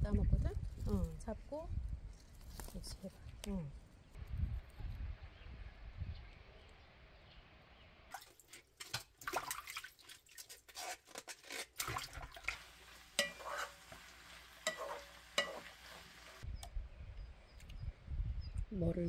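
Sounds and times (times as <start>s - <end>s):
wooden spatula stirring in frying pan: 12.4s - 16.4s.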